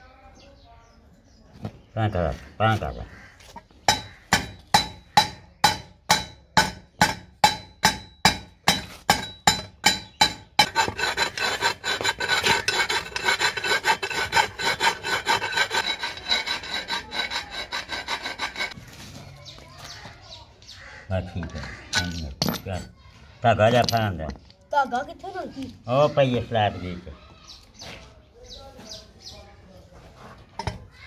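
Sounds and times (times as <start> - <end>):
hand tool rasping on metal pipe: 3.9 - 18.8.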